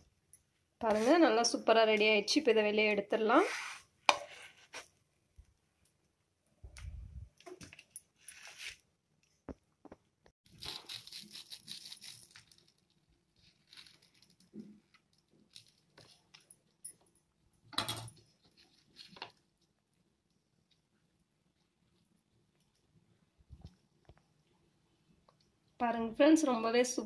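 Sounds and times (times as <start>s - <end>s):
knife sawing through toasted bread: 0.9s - 1.2s.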